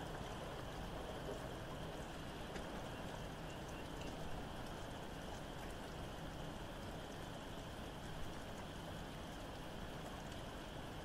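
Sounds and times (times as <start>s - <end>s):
raindrop ticks: 0.0s - 11.0s
steady rain: 0.0s - 11.0s
distant frogs chorus: 0.1s - 6.2s.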